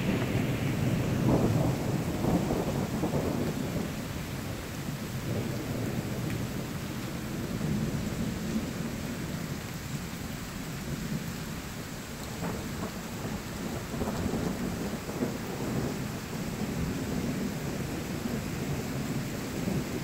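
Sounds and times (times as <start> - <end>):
heavy rain: 0.0 - 20.0.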